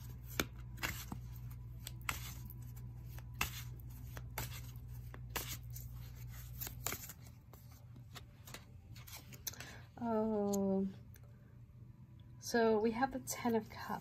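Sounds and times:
tarot cards being shuffled: 0.0s - 9.8s.

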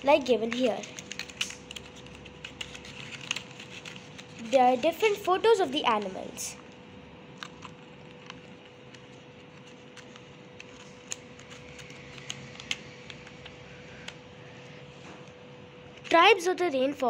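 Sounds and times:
faint steady hum: 0.0s - 17.0s
paper flaps rustling: 0.2s - 6.6s
light paper clicks: 0.4s - 5.2s.

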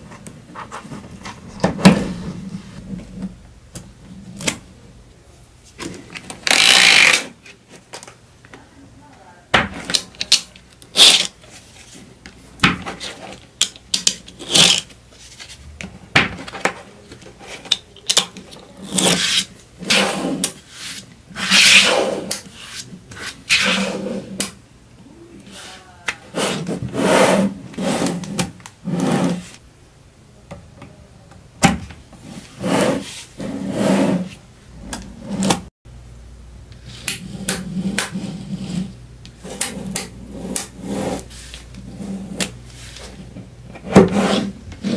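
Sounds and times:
magnet balls rattling and scraping: 9.9s - 12.1s, 12.9s - 15.6s.

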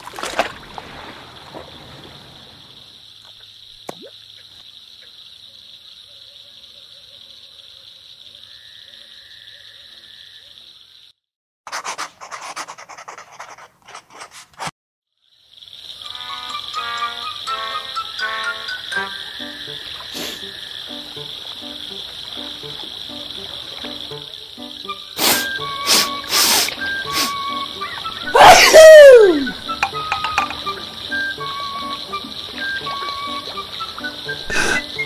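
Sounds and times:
fishing float splashing into water: 0.0s - 4.2s
still water ambience hiss: 0.0s - 11.2s, 15.2s - 35.0s
scratchy rasping noises: 11.7s - 14.7s.

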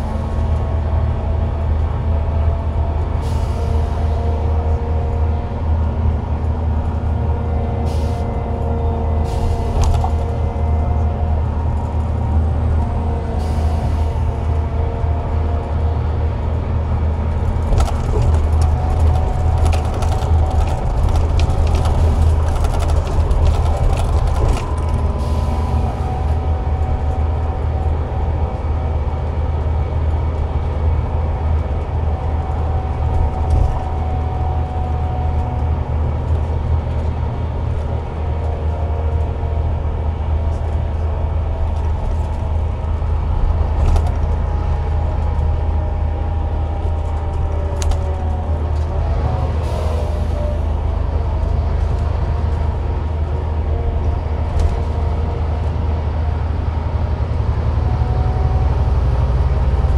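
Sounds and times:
bus diesel engine drone: 0.0s - 59.9s.

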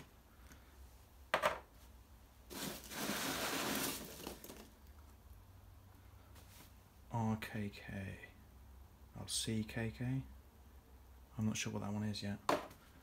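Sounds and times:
hands rummaging in packing peanuts: 2.5s - 4.7s.

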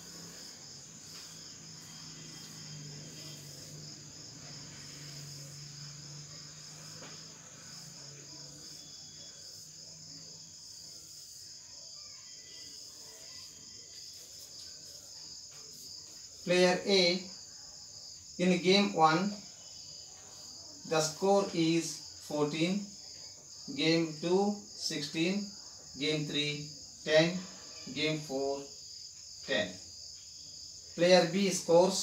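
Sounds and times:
faint low hum: 0.0s - 11.0s
crickets chirping: 0.0s - 32.0s.

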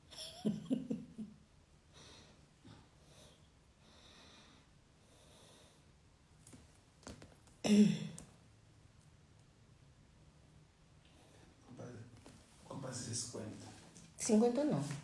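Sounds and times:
person breathing softly: 1.9s - 6.0s.

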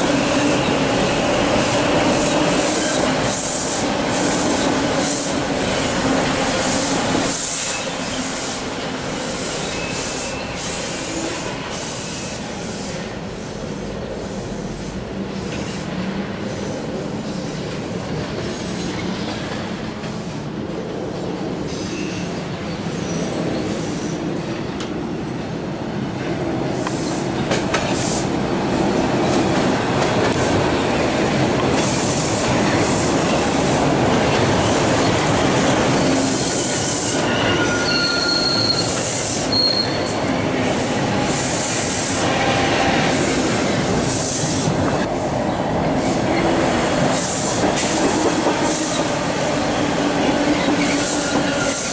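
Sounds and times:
subway train rumbling: 0.0s - 51.9s
high-pitched wheel squeal: 37.0s - 40.2s.

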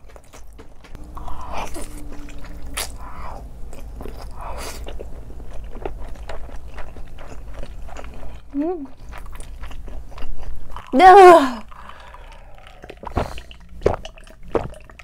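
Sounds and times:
close chewing with wet mouth sounds: 0.0s - 15.0s.

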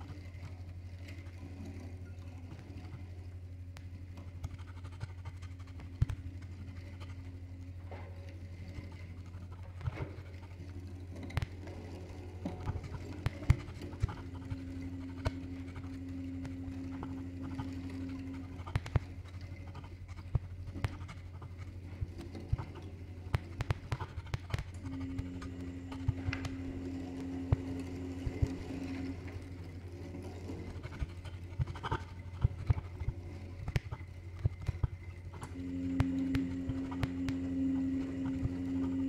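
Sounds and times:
steady low hum: 0.0s - 39.0s
light taps and scratches: 3.8s - 29.3s
held tone: 35.4s - 39.0s.

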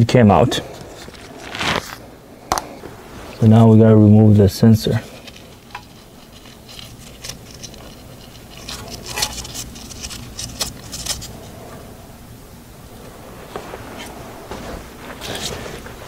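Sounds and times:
metal tools clicking and scraping: 5.2s - 11.4s.

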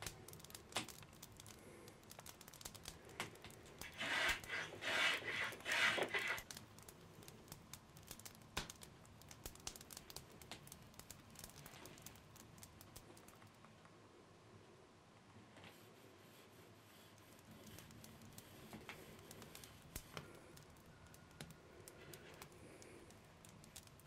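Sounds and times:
faint clicks and rustles: 0.0s - 14.0s, 15.2s - 24.0s
pencil scratching on wood: 3.9s - 6.4s.

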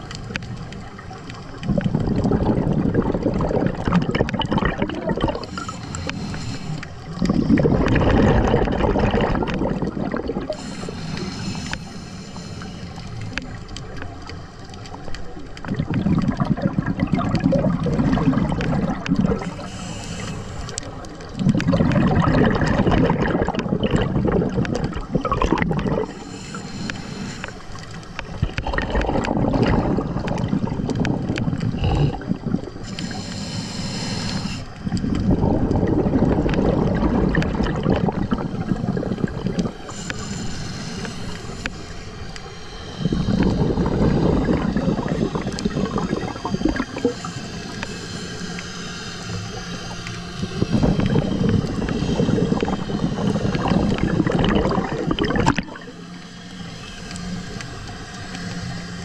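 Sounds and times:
bubbling exhaled air underwater: 0.0s - 59.0s
regulator inhale hiss: 5.2s - 8.0s, 9.5s - 15.1s, 17.8s - 21.7s, 25.9s - 28.6s, 29.8s - 35.5s, 37.6s - 59.0s.

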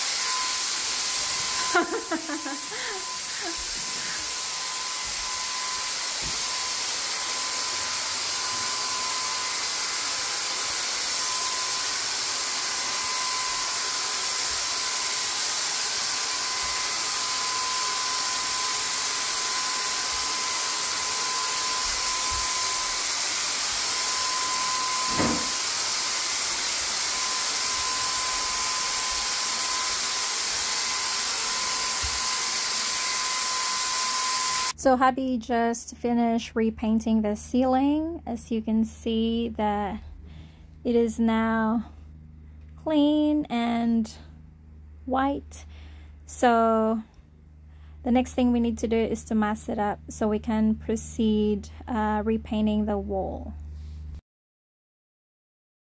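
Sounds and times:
paint sprayer hissing: 0.0s - 34.8s
paint sprayer whine: 0.0s - 34.8s.

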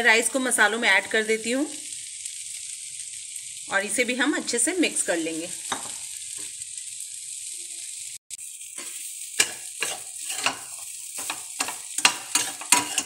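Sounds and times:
masala sizzling in pan: 0.0s - 13.0s
steel spatula scraping pan: 8.8s - 13.0s.

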